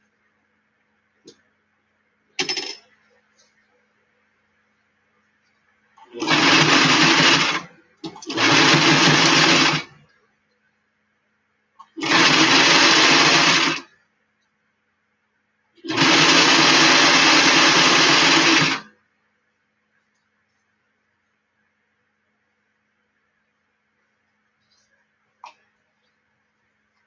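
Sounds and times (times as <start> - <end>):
sewing machine stitching: 6.0 - 10.0, 11.8 - 13.9, 15.8 - 18.9.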